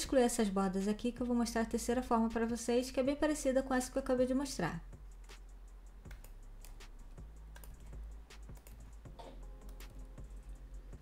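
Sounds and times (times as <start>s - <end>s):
mouse and keyboard clicks: 7.5s - 10.1s.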